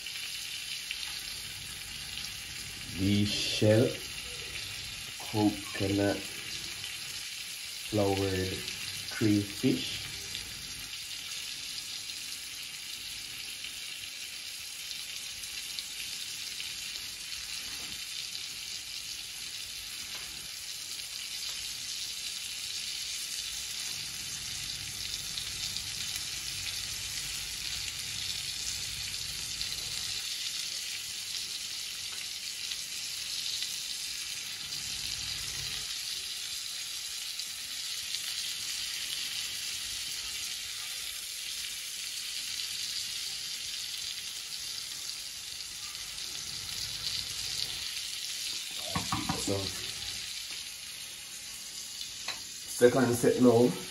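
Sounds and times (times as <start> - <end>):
food sizzling in hot oil: 0.0 - 53.9.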